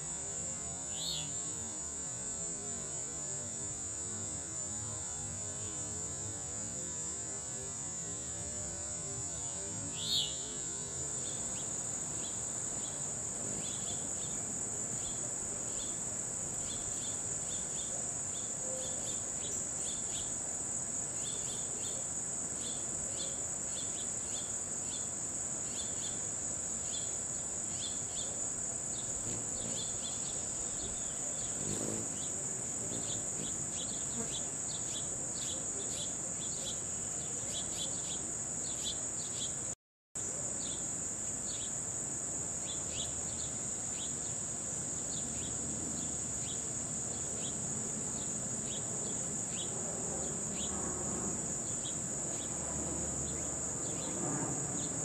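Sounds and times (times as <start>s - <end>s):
crickets trilling: 0.0s - 55.0s.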